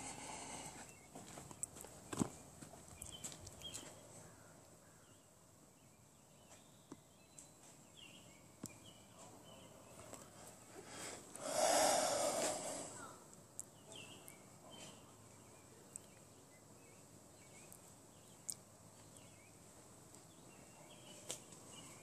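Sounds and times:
faint steps on pavement: 0.0 - 4.4, 6.4 - 11.6.

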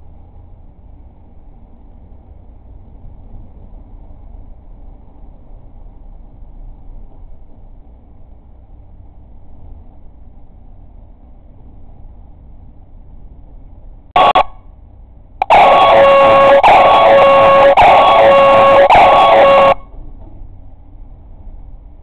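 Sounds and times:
air horn blasts: 14.2 - 14.6, 15.4 - 19.9.

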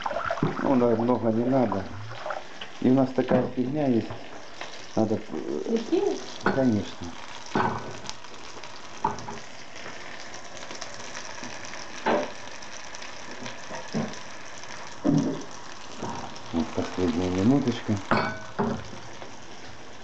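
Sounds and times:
fish sizzling in frying pan: 0.0 - 20.0.

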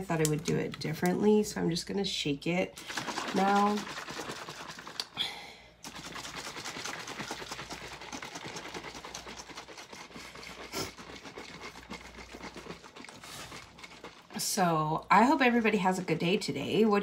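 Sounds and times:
water sloshing in shaken bottle: 2.8 - 5.2, 5.8 - 16.7.

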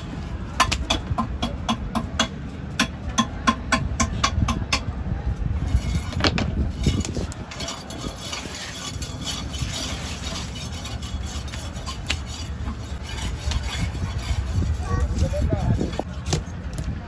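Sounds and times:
steady low rumble: 0.0 - 17.0
knife scraping fish skin: 6.8 - 16.4.

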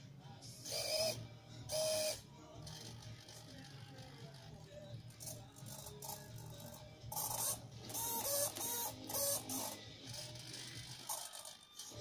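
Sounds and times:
servos whirring: 0.7 - 2.2, 5.2 - 12.0.

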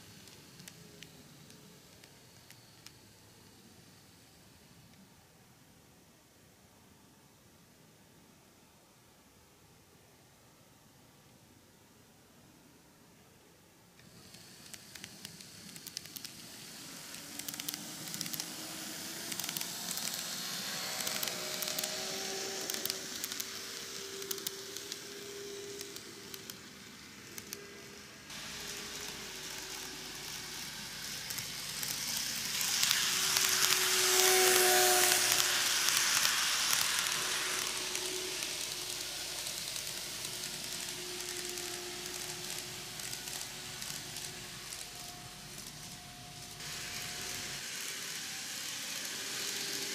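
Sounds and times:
model train wheels rattling: 14.0 - 49.9.

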